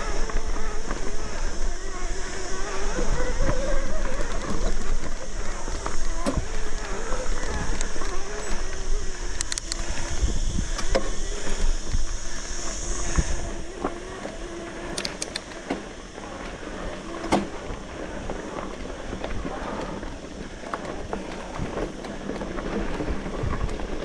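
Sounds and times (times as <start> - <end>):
wind rumble on microphone: 0.0 - 15.0, 15.9 - 24.0
electric bike motor whining: 0.0 - 24.0
bike clicks and knocks on rocks: 13.7 - 24.0.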